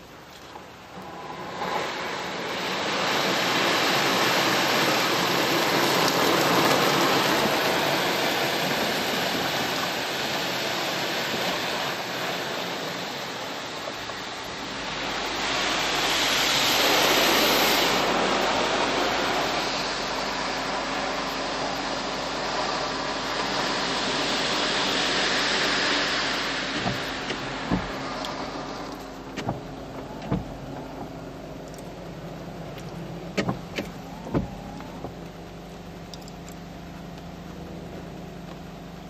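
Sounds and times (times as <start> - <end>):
low hum: 0.0 - 3.5, 12.1 - 39.0
water jets spraying on car: 0.0 - 39.0.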